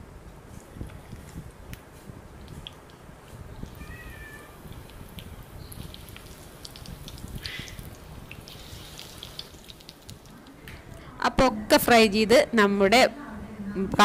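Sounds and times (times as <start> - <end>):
food frying in hot oil: 3.5 - 10.5.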